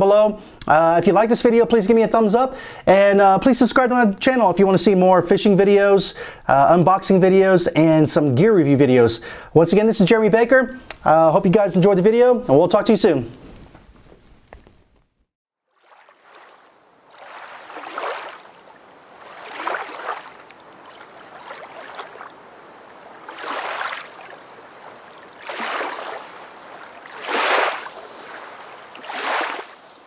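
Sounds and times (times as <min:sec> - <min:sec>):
rushing water like waves: 0:15.7 - 0:30.0.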